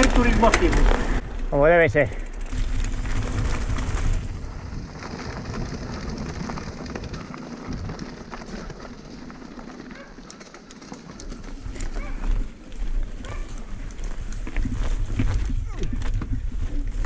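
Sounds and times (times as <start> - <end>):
bike rattling clicks: 0.0 - 1.2, 2.0 - 4.3, 4.9 - 14.4
bike tyres crunching on gravel: 0.0 - 17.0
wind rumble on microphone: 2.5 - 8.7, 11.5 - 17.0.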